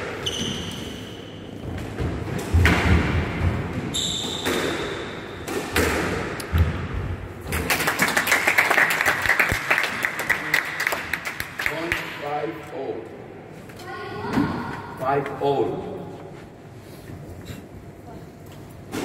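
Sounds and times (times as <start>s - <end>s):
sneaker squeak on wooden floor: 0.2s - 1.6s, 3.9s - 4.8s
hand clapping: 7.6s - 12.1s.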